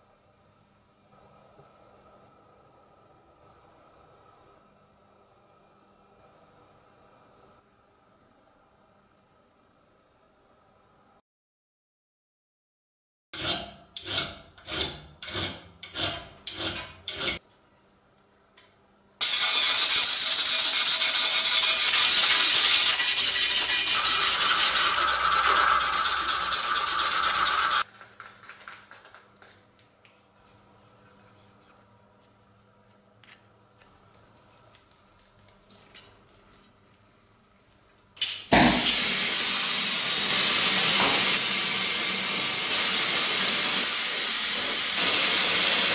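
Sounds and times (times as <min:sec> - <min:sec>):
loud steady rasping: 0:19.2 - 0:27.8
abrasive cloth rubbing metal tube: 0:19.3 - 0:27.8.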